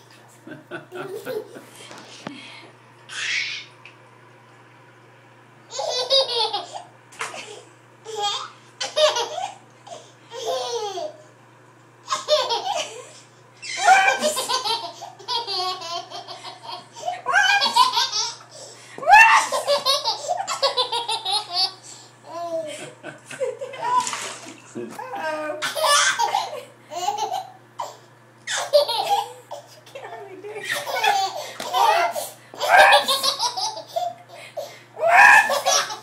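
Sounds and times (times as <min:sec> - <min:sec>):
baby laughing: 0:05.7 - 0:07.5, 0:08.1 - 0:11.2, 0:12.1 - 0:18.4, 0:19.1 - 0:22.8, 0:25.1 - 0:29.8, 0:30.7 - 0:34.3, 0:35.0 - 0:36.0.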